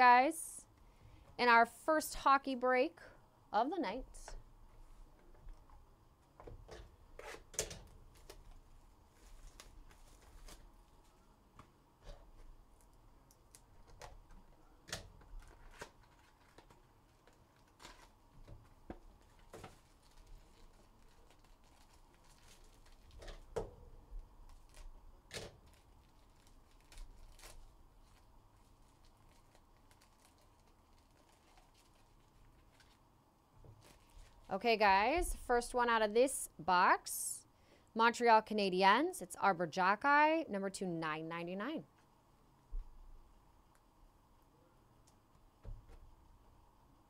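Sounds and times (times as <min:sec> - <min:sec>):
packaging torn and crinkled: 0:09.2 - 0:10.7, 0:15.0 - 0:23.5, 0:24.4 - 0:33.0.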